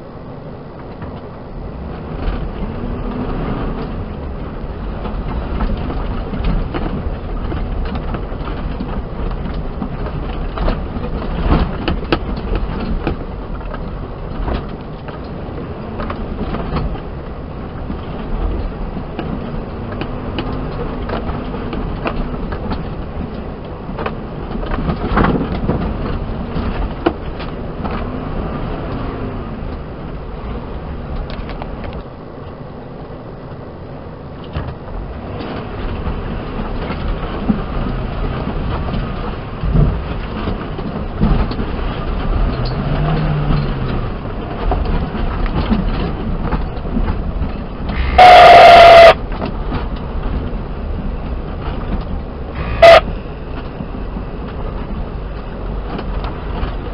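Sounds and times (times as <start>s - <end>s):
vehicle engine running under load: 0.0s - 56.9s
loud car horn: 47.9s - 49.2s, 52.6s - 53.1s.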